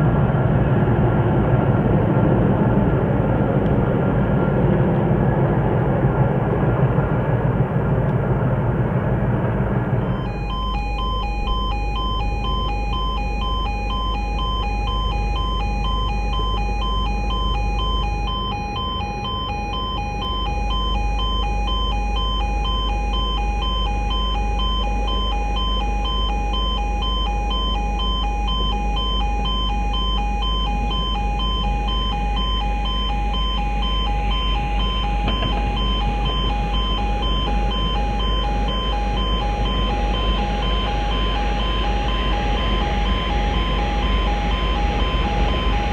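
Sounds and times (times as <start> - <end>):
low steady hum: 0.0 - 45.9
pulsing electronic alarm tones: 10.0 - 45.9.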